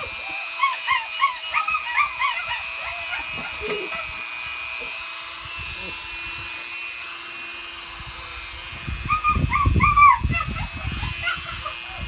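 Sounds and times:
puppy whining yelps: 0.0 - 4.2, 8.8 - 12.0
nail grinder humming: 0.0 - 12.0.

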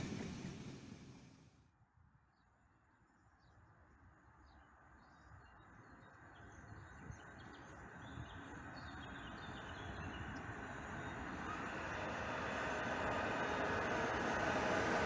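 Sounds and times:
train rumbling: 0.0 - 1.4, 10.5 - 15.0
small birds chirping: 5.0 - 12.0.

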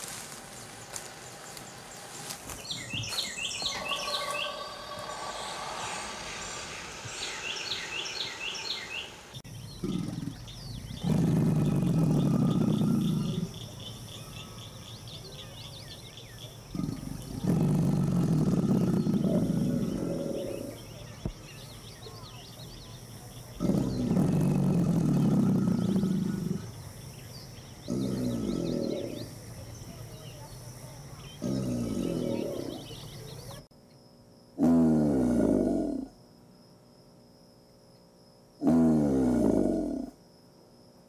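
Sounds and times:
faint high bird chirping: 0.6 - 33.7
alligator bellowing: 3.4 - 6.6, 9.7 - 14.4, 16.6 - 20.9, 23.5 - 26.8, 27.8 - 29.4, 31.4 - 33.0, 34.6 - 36.1, 38.6 - 40.2.

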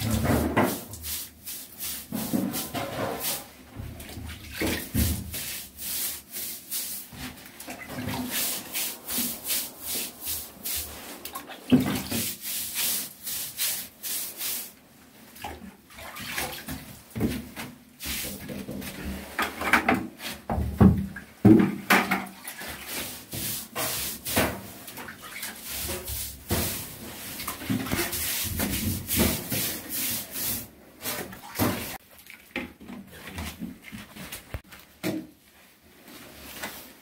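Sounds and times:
scrapes and knocks: 0.0 - 1.0, 2.0 - 4.0
brush scrubbing wall: 0.0 - 14.8, 16.1 - 20.6, 22.4 - 32.0.

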